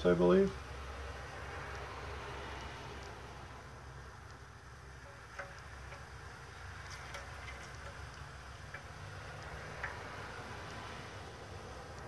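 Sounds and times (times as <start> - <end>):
oil trickling into metal pan: 4.9 - 11.0.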